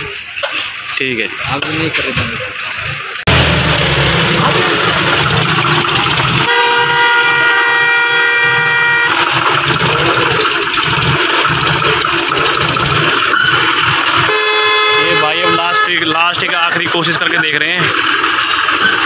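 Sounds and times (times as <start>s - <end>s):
tractor diesel engine labouring: 0.0s - 19.0s
vehicle horn blaring: 6.4s - 9.4s, 14.1s - 16.6s.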